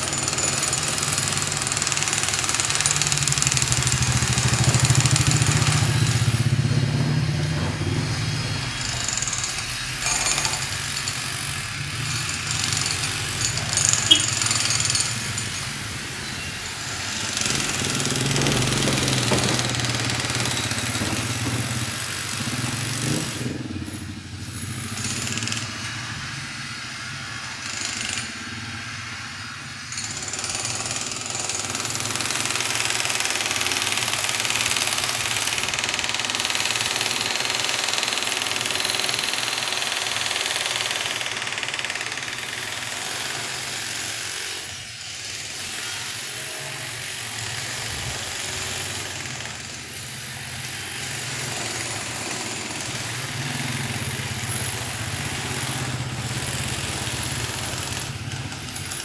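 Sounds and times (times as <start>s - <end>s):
demolition hammer breaking concrete: 0.0s - 16.2s, 17.0s - 23.8s, 47.1s - 59.0s
vehicle engines: 2.6s - 27.6s, 48.9s - 59.0s.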